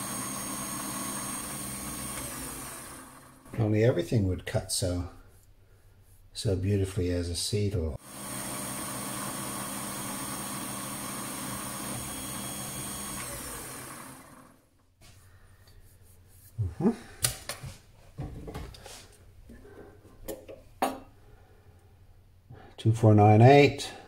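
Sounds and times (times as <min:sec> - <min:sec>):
lathe motor hum and whine: 0:00.0 - 0:03.6, 0:08.0 - 0:14.6
lathe spindle spinning down: 0:00.0 - 0:03.6, 0:08.0 - 0:14.6.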